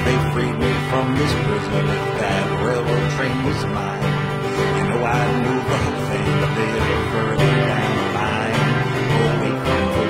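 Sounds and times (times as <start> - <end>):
country guitar music: 0.0 - 10.0.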